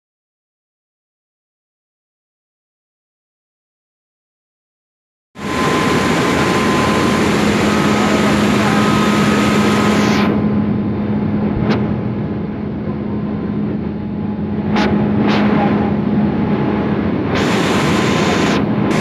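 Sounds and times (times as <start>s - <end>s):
loud steady machine hum: 5.4s - 19.0s.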